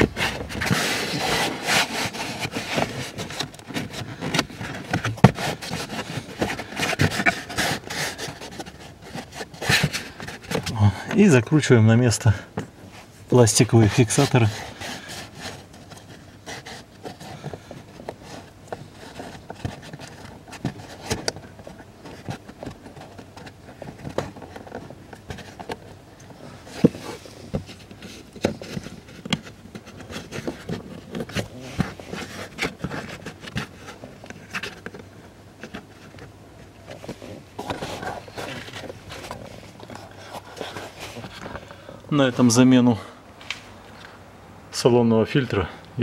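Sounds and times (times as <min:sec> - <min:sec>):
carpet and trim scraping: 0:00.0 - 0:42.6.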